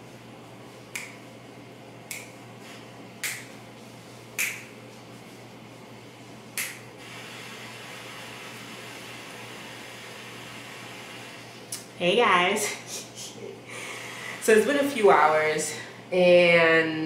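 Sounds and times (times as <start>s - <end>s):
faint room hum: 0.0s - 17.0s
fingers snapping: 0.9s - 1.2s, 2.0s - 2.4s, 3.2s - 3.5s, 4.4s - 4.7s, 6.6s - 6.9s.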